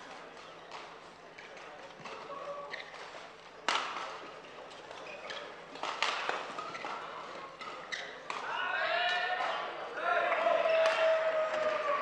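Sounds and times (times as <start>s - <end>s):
shoes squeaking on court: 2.1s - 3.4s, 4.8s - 5.7s, 6.4s - 8.3s
racket hitting shuttlecock: 3.7s - 4.2s, 5.7s - 7.0s.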